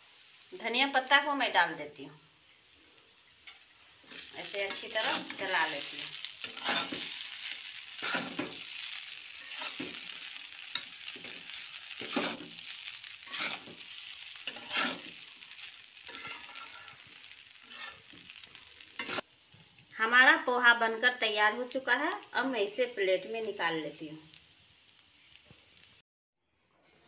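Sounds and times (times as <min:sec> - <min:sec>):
light sizzle: 0:00.0 - 0:26.0
spatula scraping metal pan: 0:03.4 - 0:07.3, 0:08.0 - 0:08.8, 0:09.4 - 0:10.1, 0:10.7 - 0:19.2.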